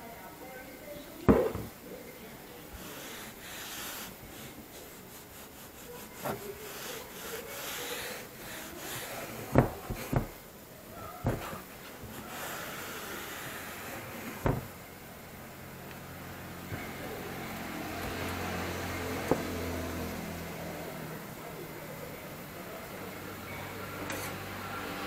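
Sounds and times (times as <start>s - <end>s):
blade knocking on tile floor: 9.5s - 10.4s, 14.4s - 14.7s.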